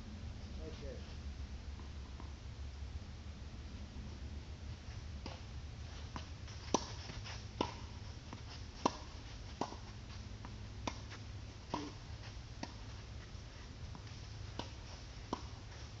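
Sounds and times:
tennis ball bouncing: 0:05.2 - 0:16.0
tennis racket striking ball: 0:06.2 - 0:12.0, 0:13.9 - 0:15.7.

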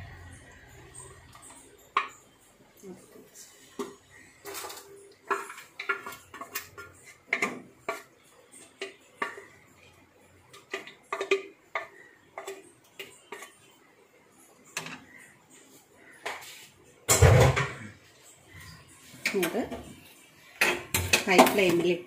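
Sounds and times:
metal spatula scraping a pot: 0:03.4 - 0:13.8.

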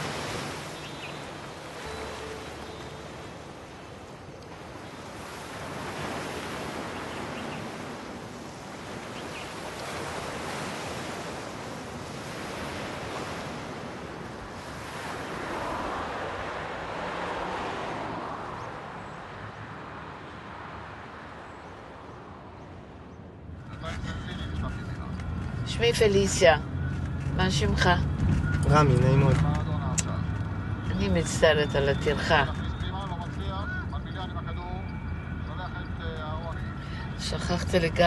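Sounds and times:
waves breaking on pebble shore: 0:00.0 - 0:18.2.

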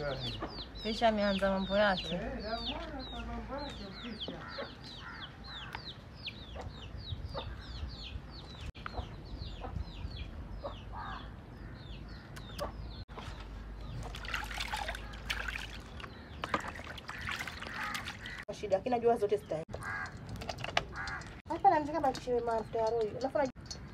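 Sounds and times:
chicks peeping: 0:02.0 - 0:10.9.

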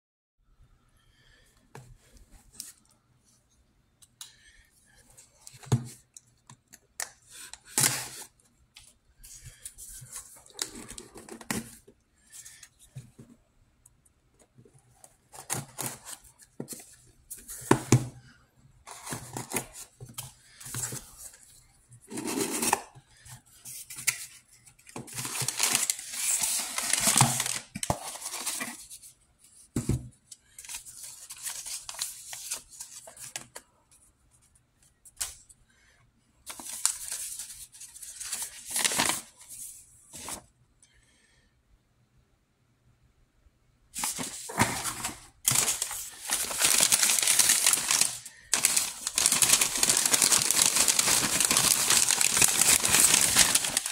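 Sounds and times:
packing paper crinkling: 0:25.0 - 0:29.0, 0:44.0 - 0:53.9
paper being unfolded: 0:44.0 - 0:53.9.

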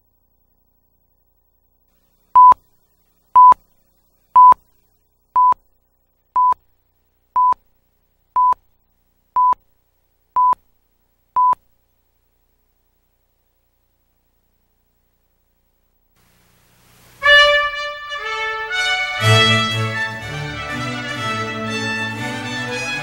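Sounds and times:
short electronic countdown beeps: 0:02.4 - 0:02.6, 0:03.4 - 0:03.6, 0:04.4 - 0:04.6, 0:06.4 - 0:06.6, 0:07.4 - 0:07.6, 0:08.4 - 0:08.6, 0:09.4 - 0:09.6, 0:10.4 - 0:10.6, 0:11.4 - 0:11.6.

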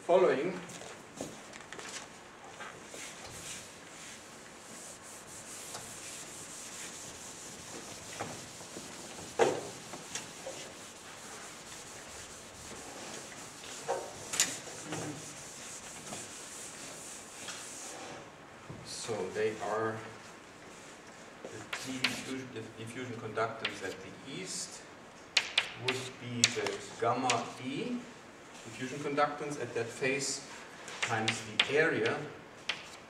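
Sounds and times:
chalk scratching on blackboard: 0:02.9 - 0:18.2, 0:21.5 - 0:22.4.

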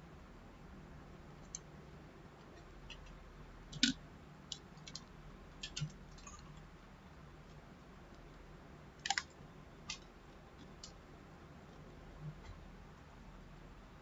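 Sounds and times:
faint low hum: 0:00.0 - 0:14.0
keyboard and mouse clicks: 0:02.5 - 0:06.4, 0:09.0 - 0:11.0.

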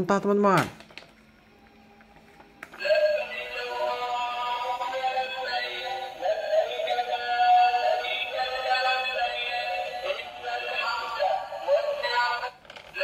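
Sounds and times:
toy playing electronic song: 0:02.7 - 0:13.0.

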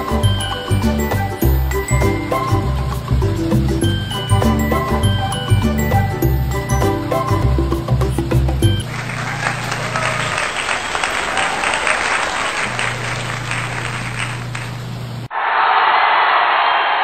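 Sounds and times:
crowd clapping: 0:08.8 - 0:15.2
crowd voices: 0:09.0 - 0:14.5.

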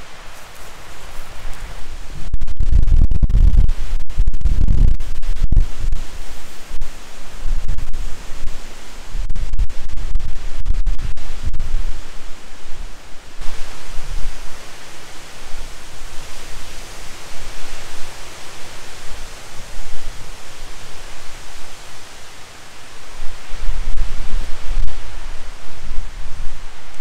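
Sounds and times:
low rumble: 0:02.0 - 0:06.0.

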